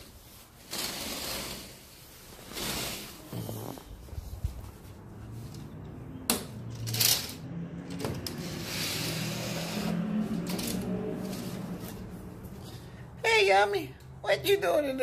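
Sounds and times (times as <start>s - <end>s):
fabric rustling against microphone: 1.6s - 5.5s.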